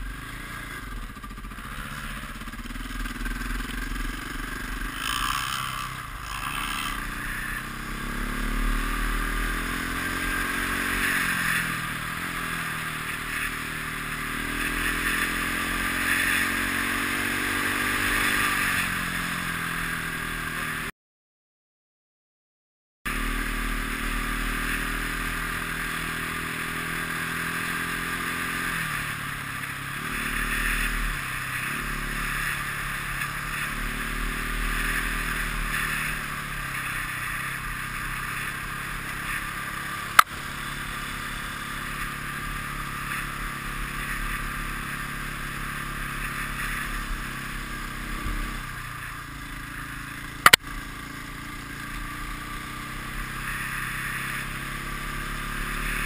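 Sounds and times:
motorcycle engine revving: 0:00.0 - 0:20.9, 0:23.1 - 0:56.0
sharp click: 0:50.4 - 0:50.6.

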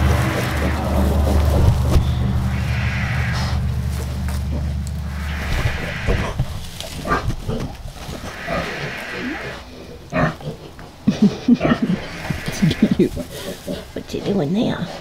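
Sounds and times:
sharp rustles: 0:00.0 - 0:09.7
pig grunting: 0:06.1 - 0:15.0.

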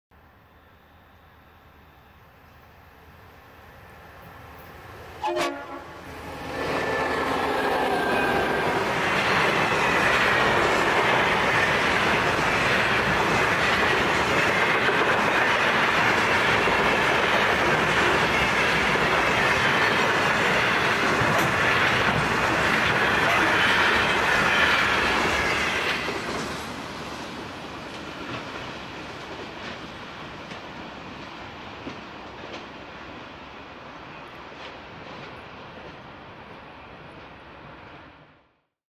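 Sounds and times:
freight train wheels rumbling and clacking: 0:05.4 - 0:37.4.

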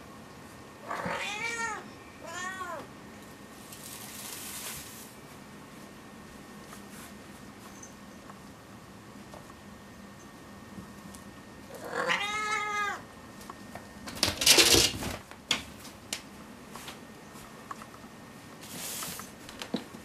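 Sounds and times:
soft rustle: 0:03.6 - 0:05.9, 0:06.6 - 0:08.0.

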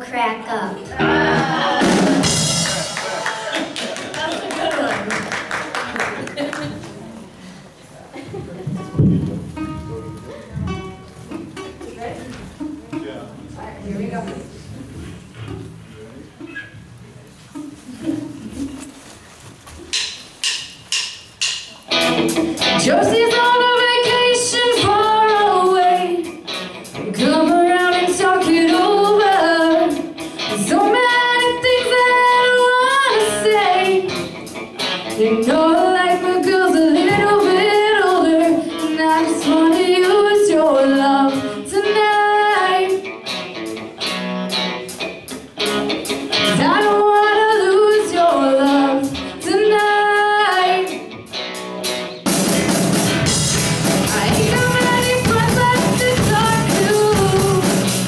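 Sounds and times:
live rock band playing: 0:00.8 - 0:04.0, 0:08.7 - 0:12.9, 0:19.9 - 0:58.0
woman singing into microphone: 0:22.8 - 0:26.4, 0:27.0 - 0:34.2, 0:35.1 - 0:43.1, 0:46.4 - 0:51.1, 0:54.0 - 0:57.9.

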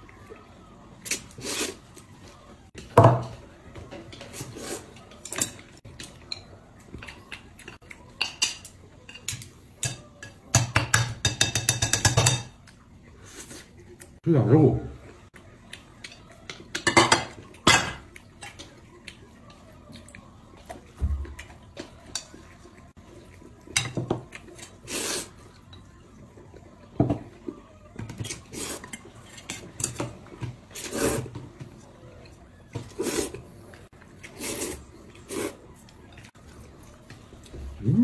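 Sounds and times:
chopsticks clinking on porcelain plates: 0:08.1 - 0:12.6
slurping noodles: 0:24.7 - 0:25.4, 0:30.7 - 0:31.3, 0:32.9 - 0:33.4, 0:34.3 - 0:35.6.

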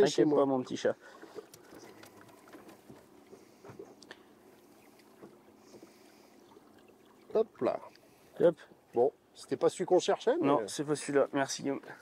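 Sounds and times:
water lapping against boat hull: 0:00.0 - 0:09.2.

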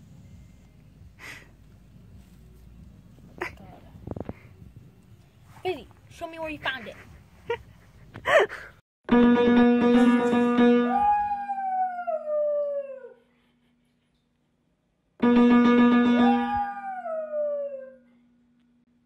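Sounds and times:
piano note: 0:09.1 - 0:11.4, 0:15.2 - 0:16.7
dog howling: 0:10.8 - 0:13.2, 0:16.2 - 0:18.1.

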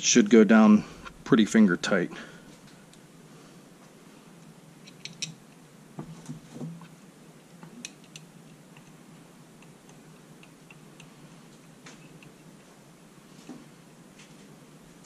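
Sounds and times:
light metal clicks and taps: 0:07.6 - 0:09.0.

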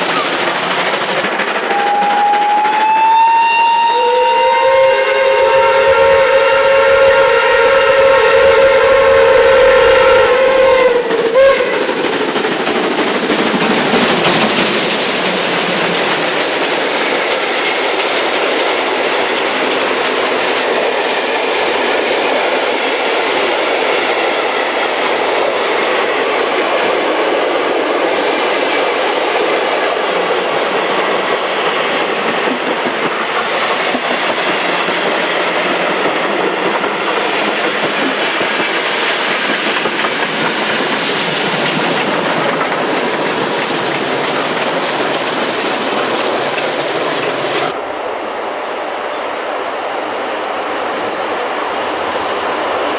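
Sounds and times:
train coaches clattering by: 0:00.0 - 0:52.9
train whistle blast: 0:01.6 - 0:11.9.

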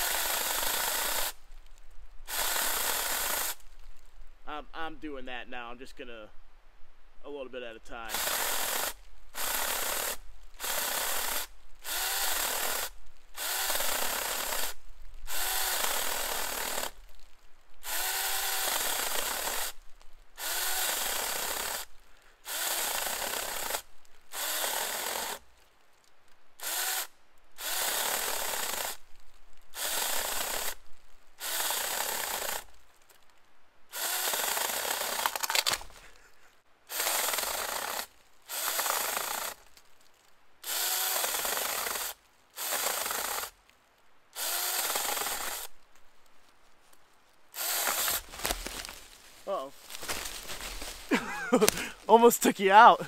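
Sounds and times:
battery chainsaw cutting log: 0:00.0 - 0:01.4, 0:02.3 - 0:03.6, 0:08.1 - 0:17.0, 0:17.8 - 0:19.8, 0:20.4 - 0:25.4, 0:26.6 - 0:29.0, 0:29.8 - 0:30.8, 0:31.4 - 0:32.7, 0:33.9 - 0:35.9, 0:36.9 - 0:39.7, 0:40.6 - 0:43.6, 0:44.4 - 0:45.7, 0:47.6 - 0:53.0.

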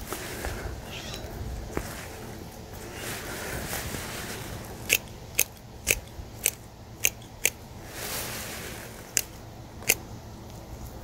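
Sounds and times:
hand pruners snipping vines: 0:04.8 - 0:07.6, 0:09.0 - 0:10.0.

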